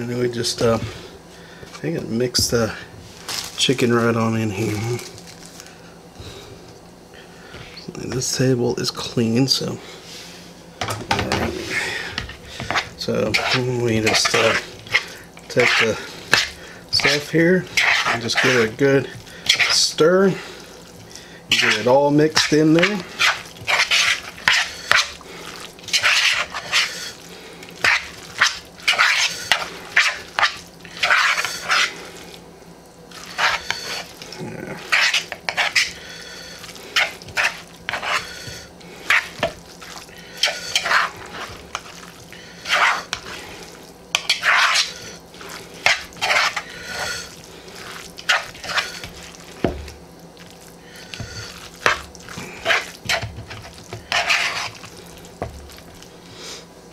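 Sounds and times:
fork scraping plastic bowl: 0:11.0 - 0:20.4, 0:21.5 - 0:27.2, 0:27.8 - 0:32.0, 0:33.1 - 0:34.2, 0:34.8 - 0:39.6, 0:40.4 - 0:43.4, 0:44.1 - 0:49.9, 0:51.0 - 0:56.0
fork mashing wet salad: 0:11.0 - 0:32.4, 0:33.1 - 0:56.1.

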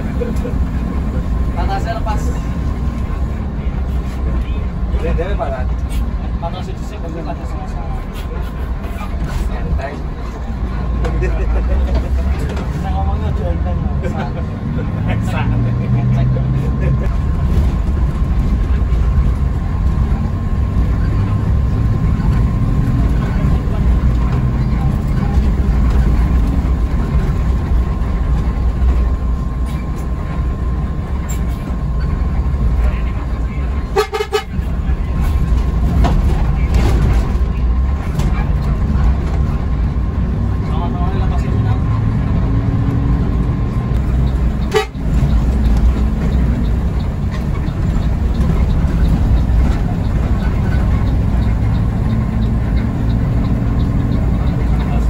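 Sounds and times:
bus engine and road rumble: 0:00.0 - 0:55.0
faint regular ticking: 0:43.9 - 0:55.0.

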